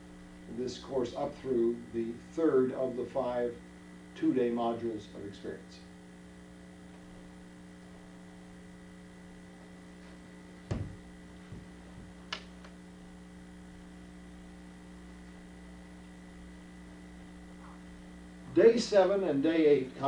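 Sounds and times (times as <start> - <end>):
electrical mains hum: 0.0 - 20.0
dull thump: 10.7 - 12.1
sharp click: 12.3 - 12.8.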